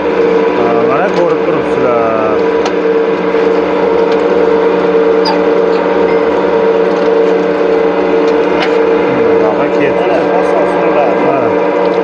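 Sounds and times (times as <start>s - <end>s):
loud machine hum: 0.0s - 12.0s.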